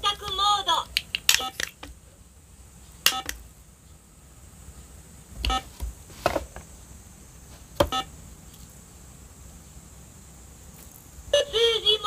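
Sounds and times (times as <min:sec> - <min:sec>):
toy scanner short electronic beeps: 0:03.1 - 0:03.4.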